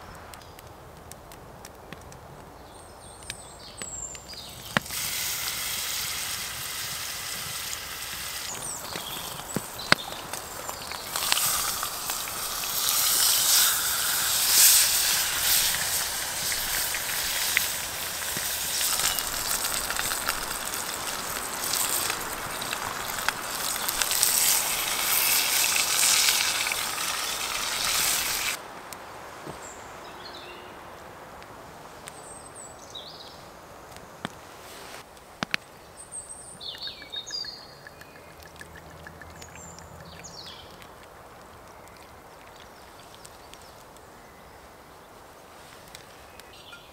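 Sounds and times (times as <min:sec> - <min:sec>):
meat sizzling in a pot: 0:04.5 - 0:28.6.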